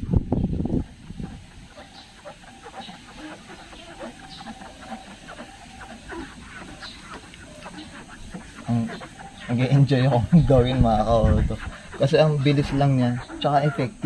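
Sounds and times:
chickens clucking: 0:00.0 - 0:14.0
sponge wiping window glass: 0:03.0 - 0:14.0.

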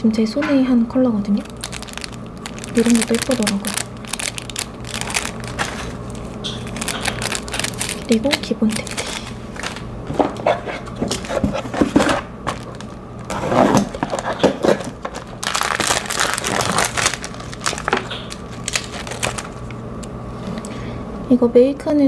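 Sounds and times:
plastic packets crinkling: 0:01.4 - 0:09.9, 0:11.0 - 0:19.8.

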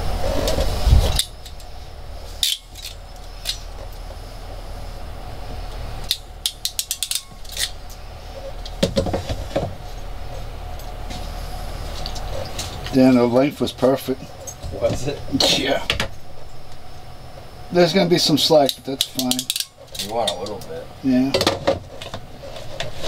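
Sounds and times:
low handling rumble: 0:00.0 - 0:19.2
crimping tool clicks and rattles: 0:06.1 - 0:07.7.

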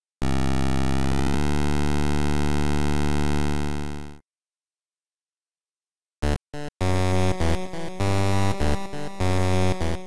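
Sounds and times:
synthesized electronic engine buzz: 0:00.2 - 0:04.2, 0:06.2 - 0:10.0.

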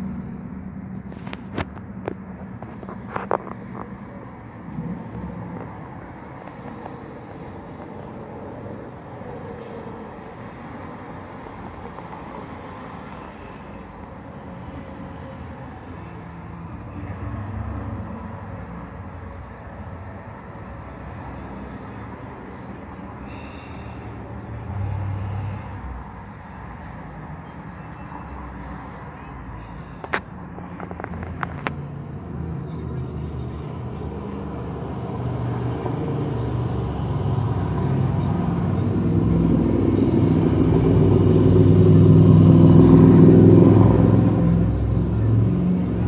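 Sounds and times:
hum of passing cars: 0:00.0 - 0:46.0
low engine rumbles of passing vehicles: 0:00.0 - 0:46.0.

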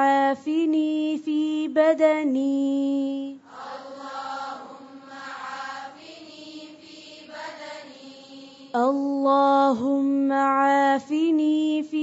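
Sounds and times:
voices chanting in unison: 0:03.4 - 0:08.8.

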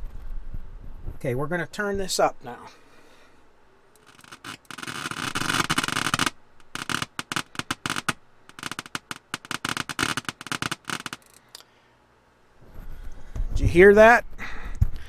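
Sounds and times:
radio static crackling and popping: 0:04.0 - 0:11.2.

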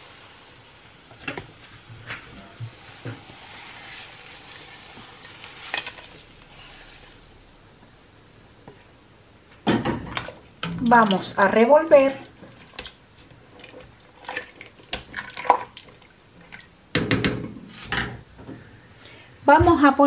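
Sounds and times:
vegetables hissing in hot broth: 0:00.0 - 0:08.6, 0:17.6 - 0:19.6.

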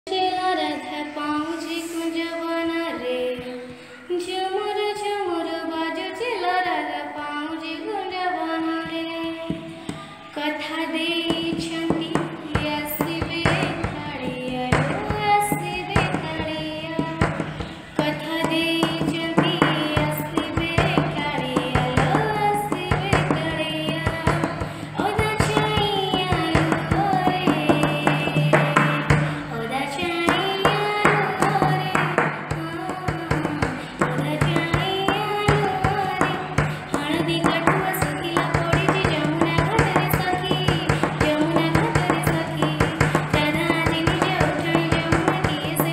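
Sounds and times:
devotional singing: 0:00.1 - 0:45.9
percussion beat: 0:09.5 - 0:10.3, 0:10.9 - 0:45.9.

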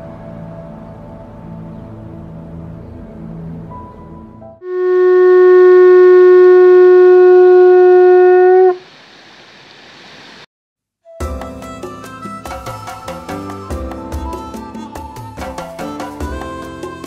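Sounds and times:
music: 0:00.0 - 0:04.6, 0:11.0 - 0:17.0
conch shell trumpet note: 0:04.6 - 0:08.8
quiet hiss: 0:08.8 - 0:10.5.

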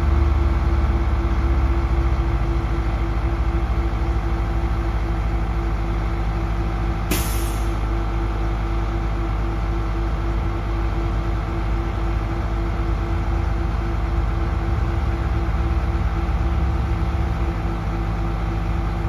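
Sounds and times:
diesel engine running: 0:00.0 - 0:19.0
sharp hiss of released air: 0:07.1 - 0:07.8.

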